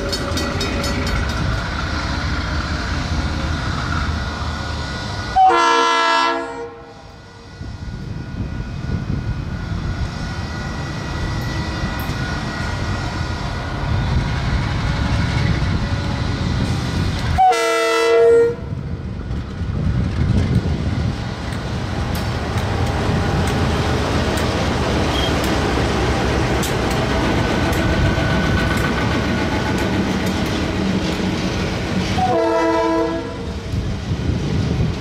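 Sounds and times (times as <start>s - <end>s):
locomotive horn blasts: 5.4s - 7.1s, 17.4s - 18.7s, 32.2s - 33.5s.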